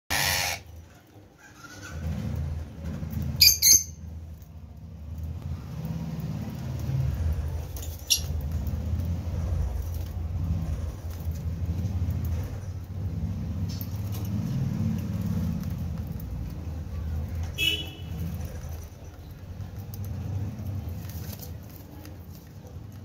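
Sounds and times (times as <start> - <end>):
parrot chick squeaking: 0.1 - 0.8, 1.4 - 2.2, 3.3 - 4.0, 7.9 - 8.4.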